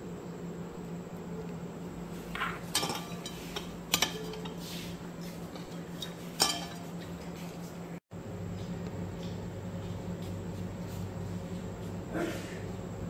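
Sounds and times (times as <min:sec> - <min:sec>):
ceramic dishes clinking on counter: 0:02.4 - 0:04.6, 0:06.4 - 0:06.8.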